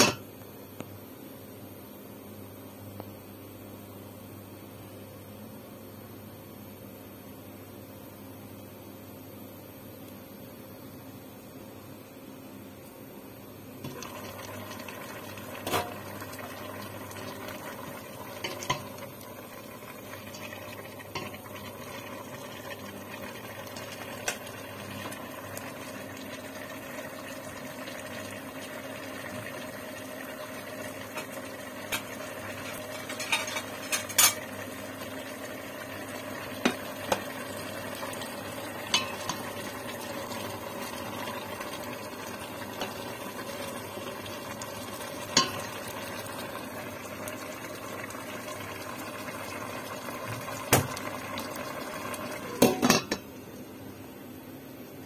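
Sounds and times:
sauce bubbling in a pot: 0:13.8 - 0:53.9.

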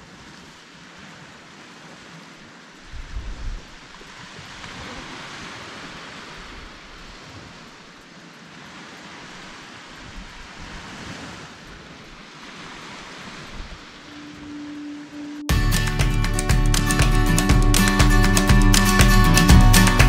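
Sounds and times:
surf washing up beach: 0:00.0 - 0:20.0
wind buffeting microphone: 0:02.8 - 0:07.7, 0:09.5 - 0:14.4.

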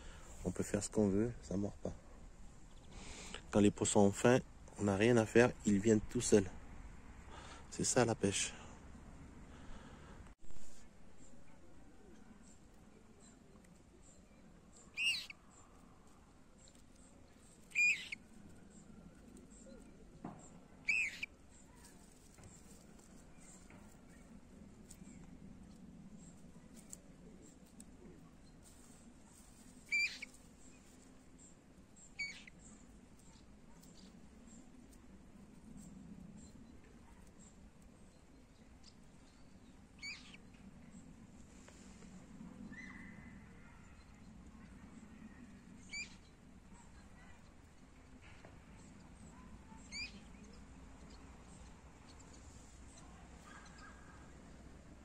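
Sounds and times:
faint low background noise: 0:00.0 - 0:55.0
faint low hum: 0:00.0 - 0:55.0
faint bird chirps: 0:11.1 - 0:41.2, 0:42.6 - 0:55.0
high-pitched bird calls: 0:14.8 - 0:15.4, 0:17.7 - 0:18.3, 0:20.8 - 0:21.7, 0:29.9 - 0:30.4, 0:32.0 - 0:34.1, 0:40.0 - 0:40.6, 0:45.8 - 0:46.3, 0:49.7 - 0:52.2
bird call: 0:14.9 - 0:15.4, 0:17.7 - 0:18.2, 0:20.8 - 0:21.3, 0:29.9 - 0:30.4.

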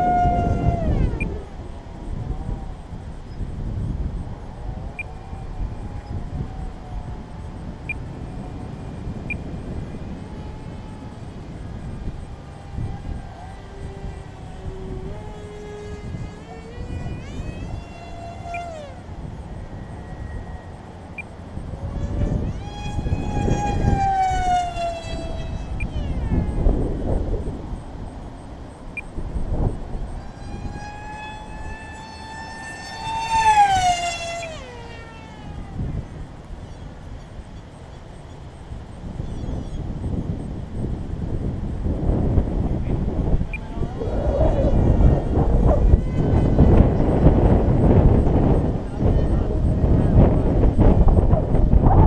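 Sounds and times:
model plane motor whine: 0:00.0 - 0:52.0
wind buffeting microphone: 0:00.0 - 0:52.0.

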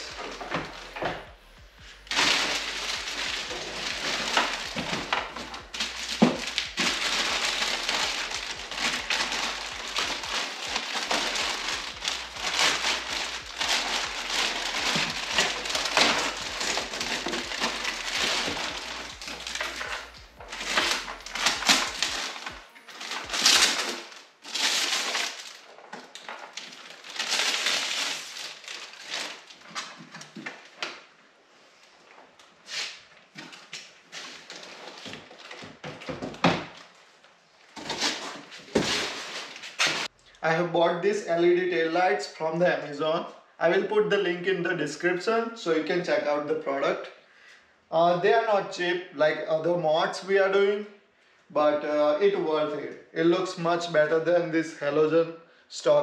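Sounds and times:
plastic packaging crinkling: 0:00.0 - 0:31.1, 0:32.7 - 0:40.2.

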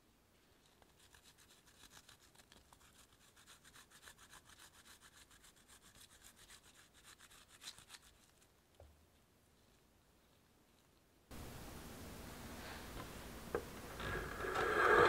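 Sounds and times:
cheese scraping on grater: 0:00.7 - 0:08.4.

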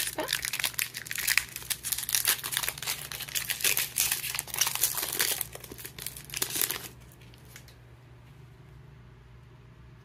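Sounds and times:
foil wrapper tearing and crinkling: 0:00.0 - 0:07.8.

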